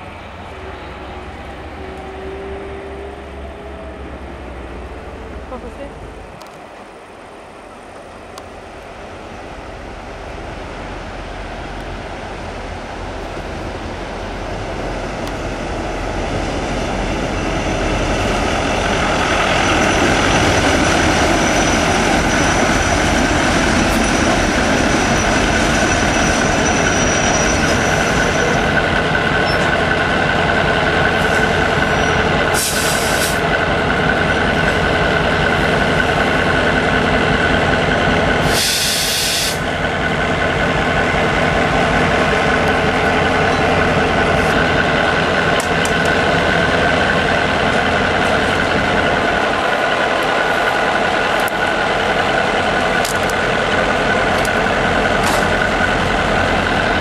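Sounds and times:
diesel locomotive engine: 0:00.0 - 0:57.0
sharp hiss: 0:32.5 - 0:33.4, 0:38.4 - 0:39.7.

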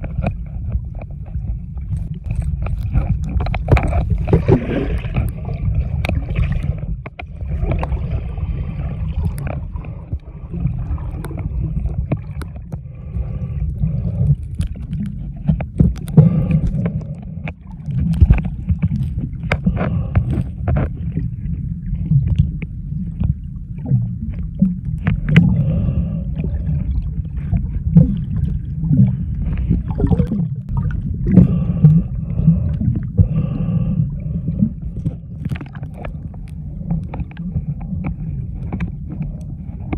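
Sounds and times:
underwater water rumble: 0:00.0 - 0:39.9
faint bubbling: 0:21.0 - 0:38.6.

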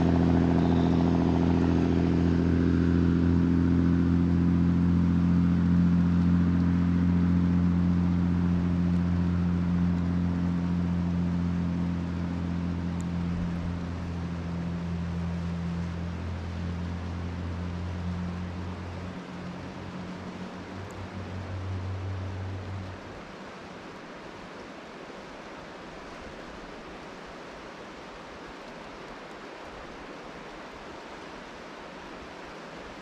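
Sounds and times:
vehicle engine hum: 0:00.0 - 0:26.2
hiss of rain: 0:00.0 - 0:33.0
river water: 0:00.0 - 0:33.0.

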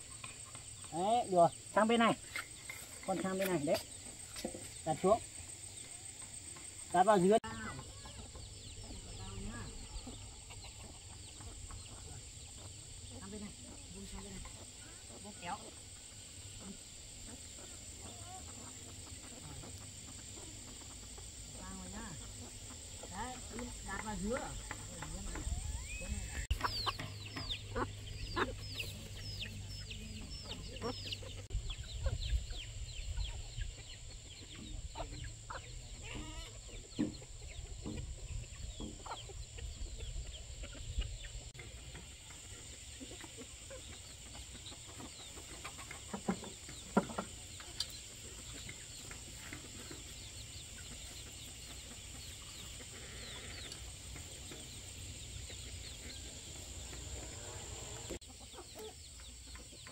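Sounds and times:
chicks peeping: 0:00.0 - 0:59.9
hen clucking: 0:00.0 - 0:59.9.

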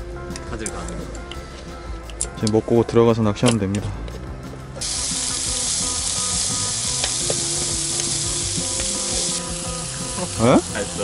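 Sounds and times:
meat sizzling on grill pan: 0:04.8 - 0:11.0.

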